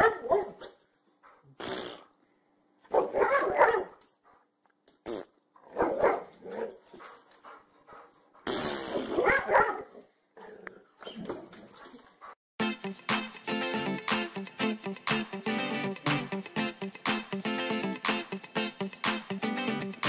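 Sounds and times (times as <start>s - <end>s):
dog growling and barking: 5.6s - 6.8s, 8.9s - 11.5s.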